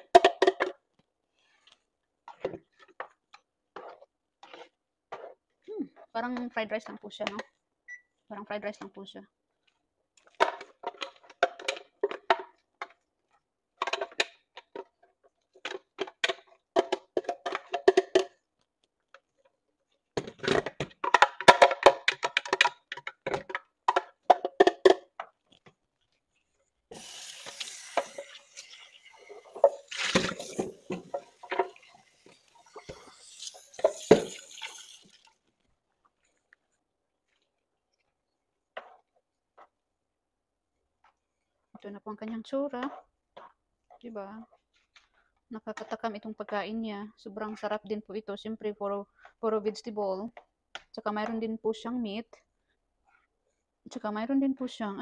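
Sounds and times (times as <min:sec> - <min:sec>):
spatula knocking and scraping: 0:02.2 - 0:07.4, 0:38.7 - 0:39.8.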